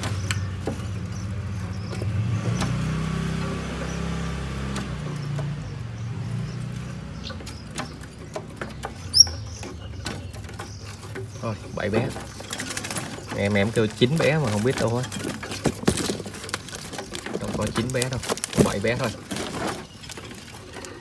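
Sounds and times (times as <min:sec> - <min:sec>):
nestling birds squeaking: 0:00.0 - 0:21.0
sharp rising chirp: 0:09.1 - 0:09.4.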